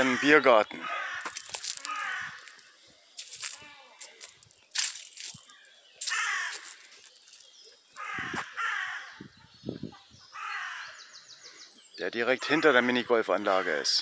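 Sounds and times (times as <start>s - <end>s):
crow cawing: 0.0s - 2.8s, 6.0s - 7.0s, 8.0s - 9.3s, 10.3s - 11.2s, 13.4s - 14.0s.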